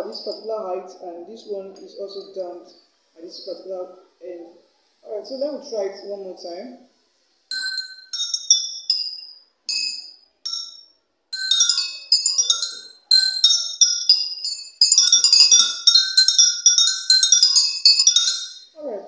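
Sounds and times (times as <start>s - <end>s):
spatula striking glass beakers: 7.5s - 18.8s.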